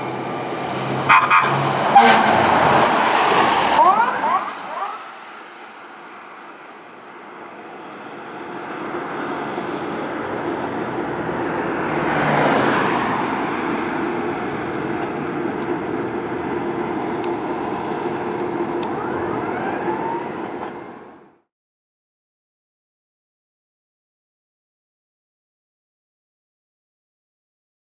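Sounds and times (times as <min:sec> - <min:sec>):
fire engine siren wailing: 0:00.0 - 0:06.0, 0:11.3 - 0:21.4
vehicle passing close: 0:00.0 - 0:06.4, 0:08.0 - 0:20.7
street traffic: 0:00.0 - 0:21.5.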